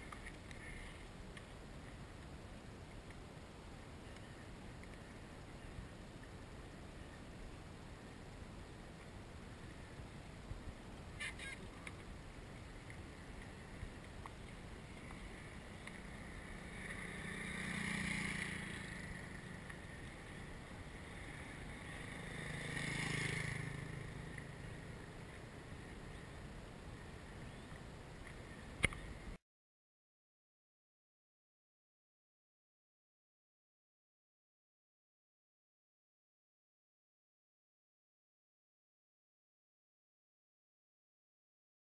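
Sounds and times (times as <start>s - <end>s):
road vehicles passing: 0.0s - 29.3s
low outdoor background: 0.0s - 29.4s
sharp click: 28.8s - 29.0s.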